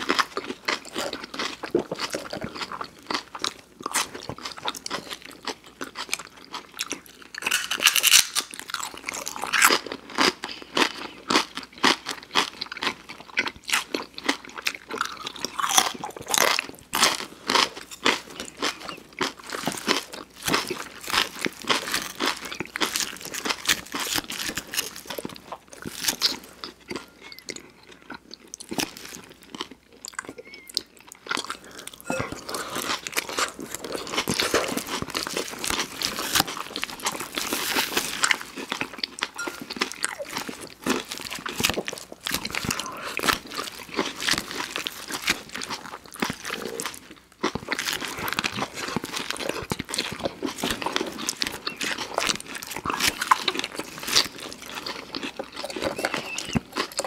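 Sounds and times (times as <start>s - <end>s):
people chewing crisp lettuce: 0.0s - 57.0s
wet mouth sounds: 30.0s - 44.2s.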